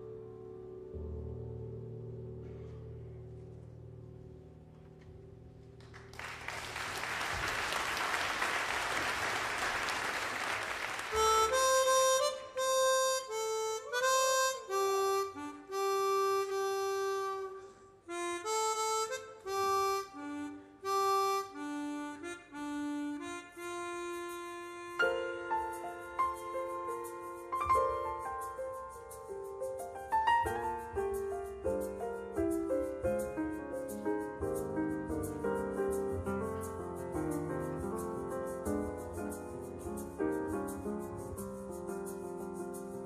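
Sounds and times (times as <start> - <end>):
audience applause: 5.9 - 11.3
harmonica slow solo melody: 11.1 - 41.8.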